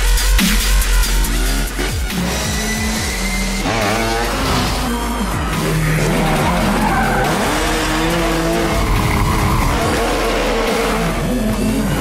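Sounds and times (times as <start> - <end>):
engines revving: 0.9 - 12.0
tyres skidding on pavement: 3.0 - 11.7.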